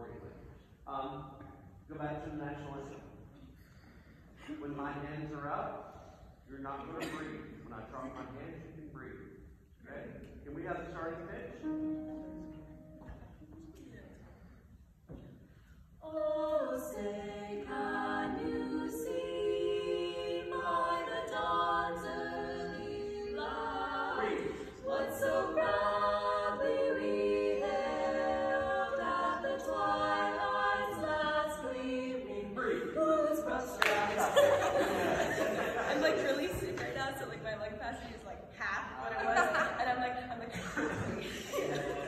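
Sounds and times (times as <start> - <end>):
women singing a cappella harmony: 16.0 - 38.0.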